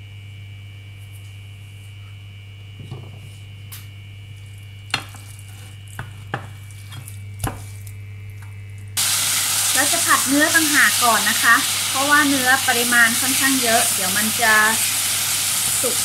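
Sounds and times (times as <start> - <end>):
electrical hum with high whine: 0.0 - 16.0
spatula knocking and scraping: 4.9 - 7.8.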